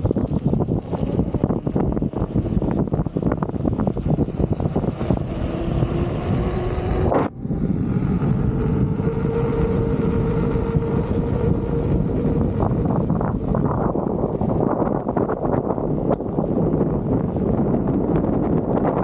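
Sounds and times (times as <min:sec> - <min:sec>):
wheel rumbling on brick paving: 0:00.0 - 0:07.1
electric motor hum: 0:00.0 - 0:19.0
wind buffeting microphone: 0:00.0 - 0:19.0.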